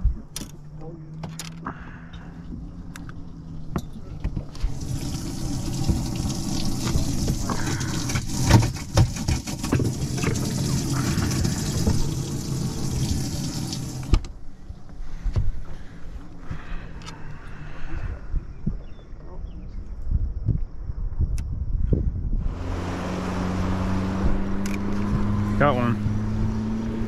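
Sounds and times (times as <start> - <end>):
low pump hum: 2.0 - 8.5, 9.6 - 16.8
water pouring and splashing: 4.5 - 14.1.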